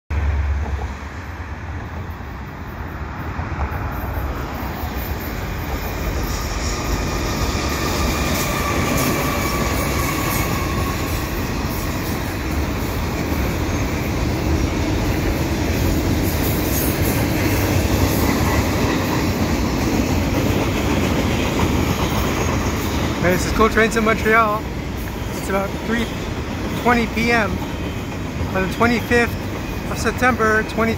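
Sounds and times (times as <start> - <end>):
diesel locomotive rumble: 0.1 - 30.9
train wheels clattering on rails: 3.6 - 30.9
faint high wheel squeal: 4.0 - 11.3.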